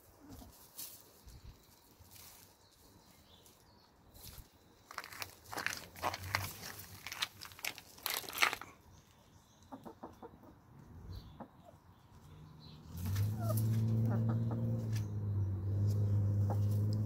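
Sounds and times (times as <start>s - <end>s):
hens scratching in soil: 0.0s - 8.7s.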